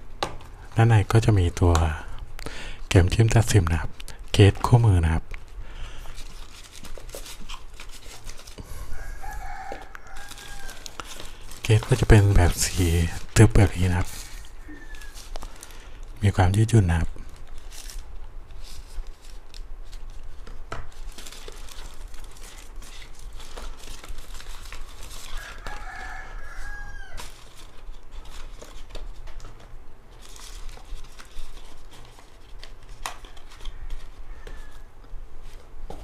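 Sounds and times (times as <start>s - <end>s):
rooster crowing: 8.7s - 11.0s, 14.4s - 15.2s, 25.2s - 27.4s, 33.3s - 35.0s
packaging crinkling and clicking: 9.2s - 16.2s, 17.3s - 34.8s.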